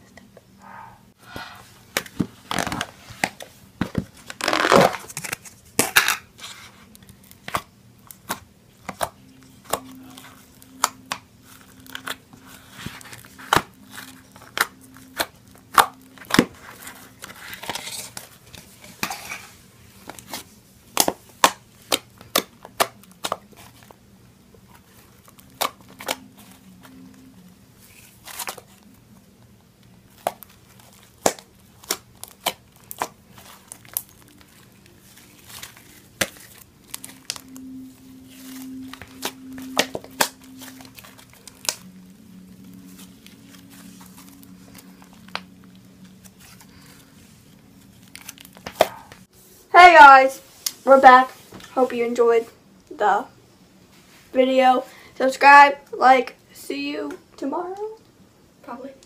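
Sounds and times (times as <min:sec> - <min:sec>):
slime popping and crackling: 0:30.1 - 0:37.7, 0:38.3 - 0:46.5.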